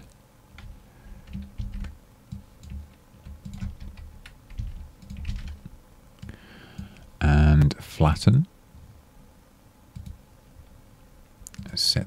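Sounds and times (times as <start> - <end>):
keyboard keystrokes: 0.6 - 6.9, 10.0 - 10.2.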